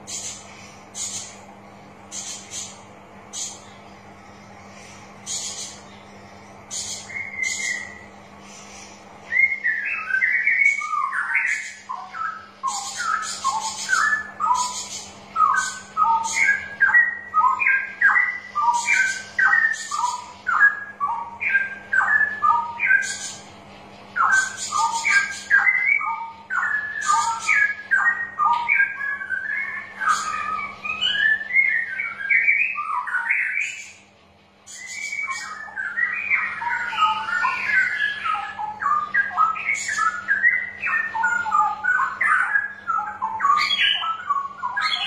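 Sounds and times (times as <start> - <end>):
steady low hum: 0.0 - 45.0
bird singing bubbling whistles: 6.8 - 8.1, 9.2 - 23.4, 24.2 - 34.0, 34.7 - 45.0.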